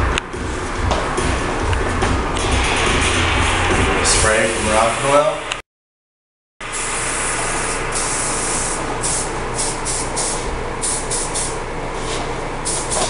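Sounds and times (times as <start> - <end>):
steady hum: 0.0 - 5.6, 6.6 - 13.0
aerosol spray hissing: 6.7 - 11.5, 12.7 - 13.0.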